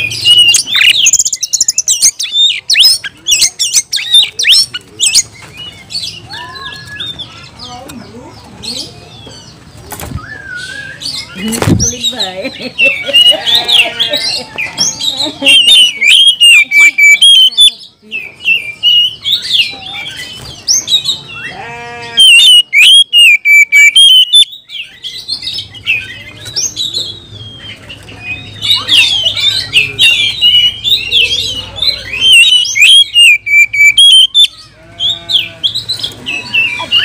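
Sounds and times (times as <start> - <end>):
bird singing whistled phrases: 10.1 - 11.6, 15.5 - 20.4, 22.2 - 34.6.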